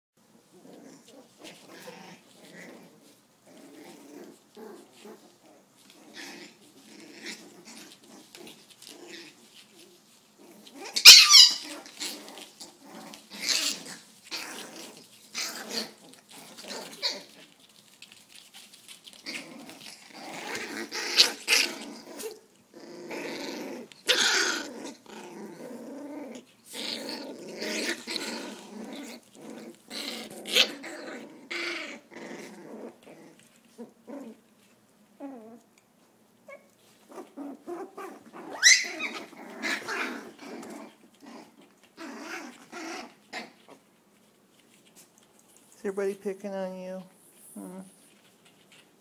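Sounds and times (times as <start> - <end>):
puppies growling: 0.2 - 45.9, 47.2 - 49.0
puppies yipping: 10.6 - 12.4, 36.5 - 40.8.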